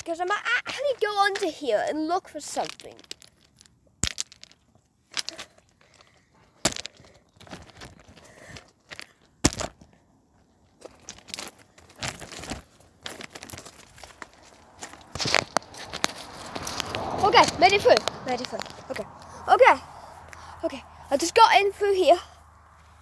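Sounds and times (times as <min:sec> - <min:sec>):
twigs and brambles rustling: 0:00.0 - 0:23.0
footsteps crunching on stones: 0:02.6 - 0:19.3.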